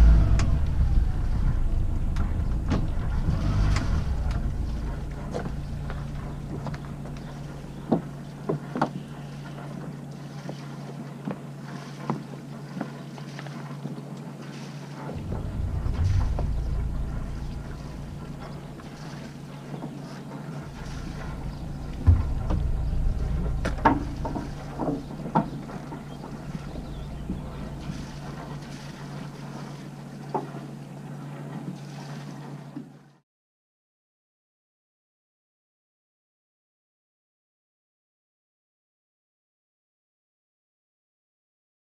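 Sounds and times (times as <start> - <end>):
steady low hum: 0.0 - 14.2, 14.9 - 31.5
wind gusting on microphone: 15.1 - 19.0.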